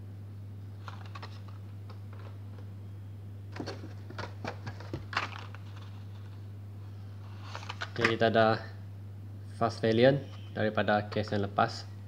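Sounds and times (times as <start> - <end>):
steady low hum: 0.0 - 12.0
plastic packs clicking and crackling: 3.6 - 5.9.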